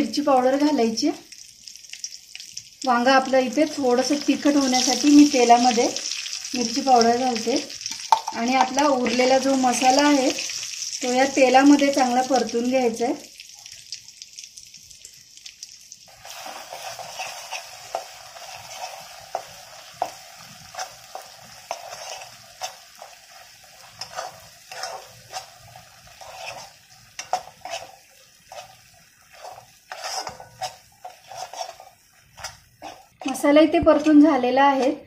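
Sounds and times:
masala sizzling in oil: 0:00.0 - 0:35.0
spoon scraping and knocking pan: 0:07.9 - 0:10.5, 0:16.2 - 0:35.0.

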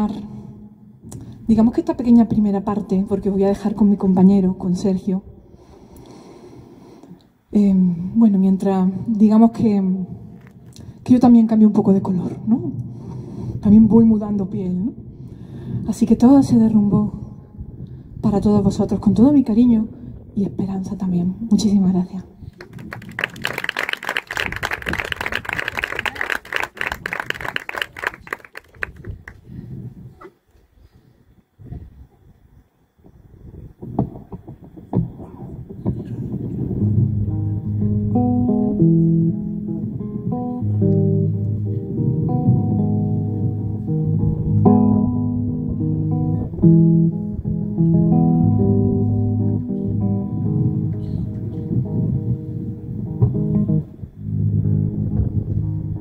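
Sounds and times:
audience applauding: 0:22.5 - 0:29.4
solo guitar playing: 0:36.8 - 0:56.0.

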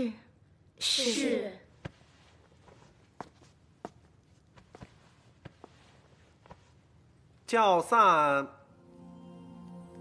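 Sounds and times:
soft footsteps: 0:01.7 - 0:07.3.

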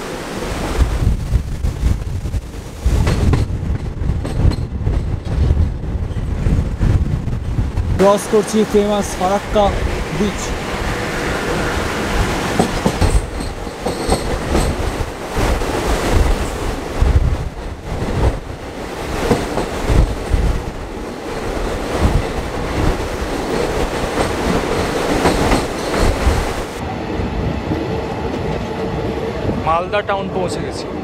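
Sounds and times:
train wheels clattering on rails: 0:02.8 - 0:07.0, 0:11.2 - 0:26.8.

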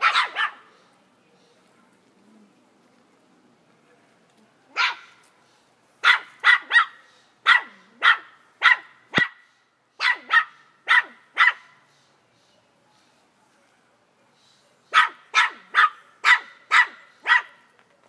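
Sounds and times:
puppy barking: 0:00.0 - 0:00.7, 0:04.8 - 0:05.2, 0:06.0 - 0:09.4, 0:10.0 - 0:11.7, 0:14.9 - 0:17.6.

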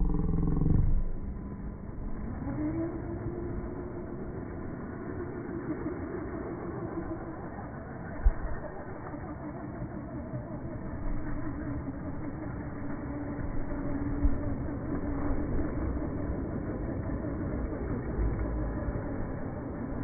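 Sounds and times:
low rumble: 0:00.0 - 0:05.6
electric rc motor whining: 0:00.0 - 0:20.0.

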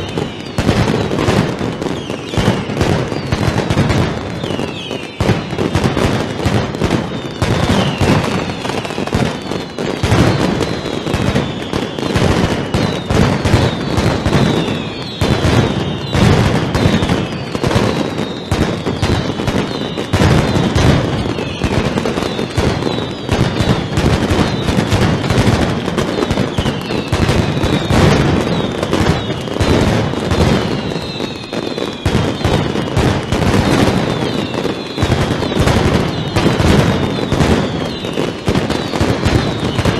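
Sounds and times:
firecrackers exploding in rapid volley: 0:00.0 - 0:39.9
falling whistles: 0:01.8 - 0:03.4, 0:04.4 - 0:05.2, 0:07.0 - 0:24.9, 0:30.6 - 0:39.9.

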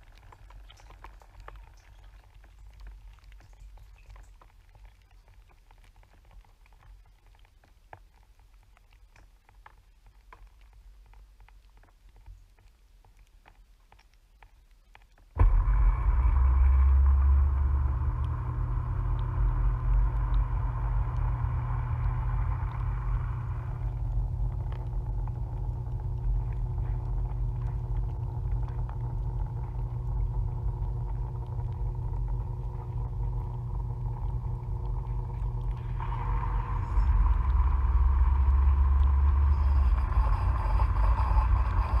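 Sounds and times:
dishwasher pump humming: 0:15.4 - 0:42.0
water rushing hiss: 0:35.2 - 0:42.0.

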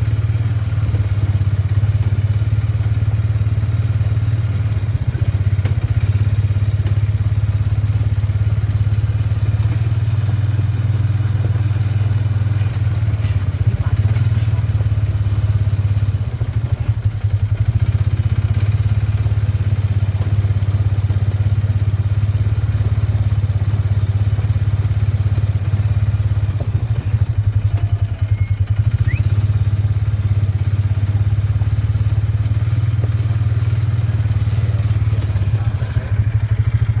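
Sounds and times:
farm vehicle engine running: 0:00.0 - 0:37.0.

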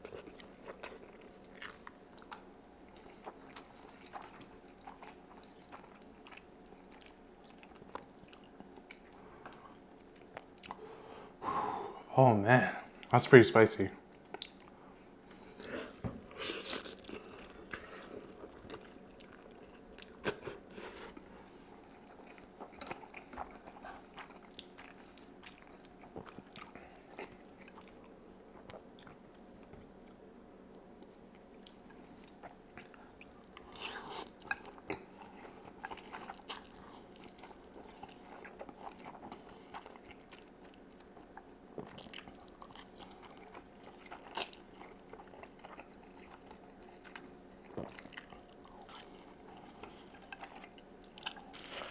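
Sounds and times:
wet chewing: 0:21.8 - 0:30.2, 0:31.4 - 0:51.9.

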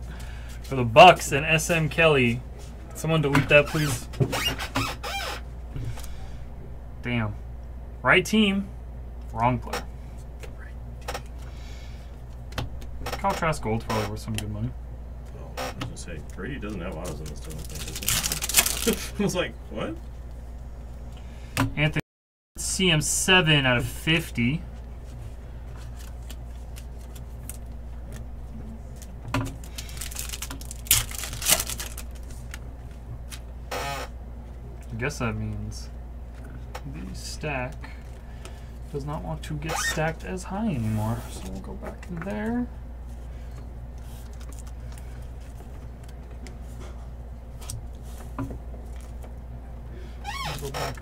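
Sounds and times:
steady low hum: 0:00.0 - 0:22.0, 0:22.6 - 0:51.0
cards rustling: 0:16.2 - 0:19.1, 0:25.7 - 0:33.4, 0:44.0 - 0:46.8.

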